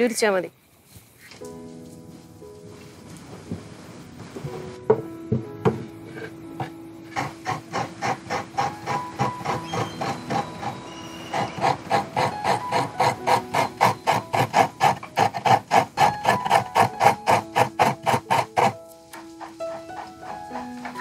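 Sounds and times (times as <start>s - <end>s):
coconut scraped on metal scraper: 7.1s - 18.7s.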